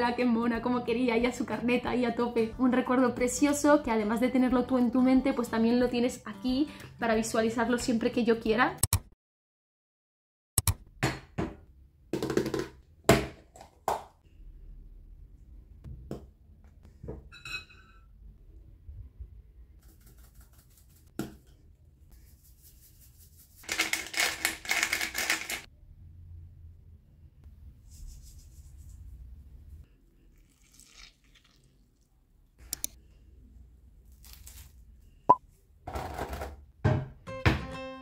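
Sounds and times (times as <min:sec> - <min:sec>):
sharp glass clink: 0:17.3 - 0:18.1
spice shaker rattling: 0:22.6 - 0:25.7.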